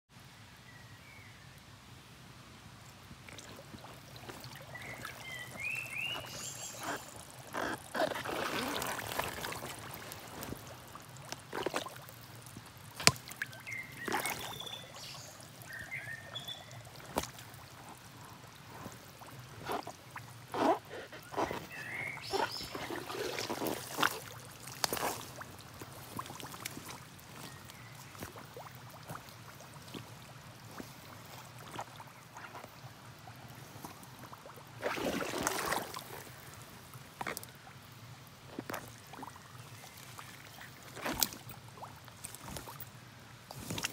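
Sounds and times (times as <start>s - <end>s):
boots squelching through mud: 3.3s - 32.7s, 33.8s - 36.5s, 40.8s - 41.6s, 42.2s - 42.8s, 43.5s - 43.9s.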